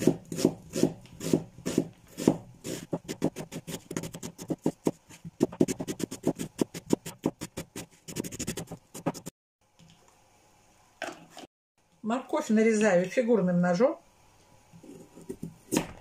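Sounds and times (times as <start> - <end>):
knife slicing onion: 0.0 - 9.3.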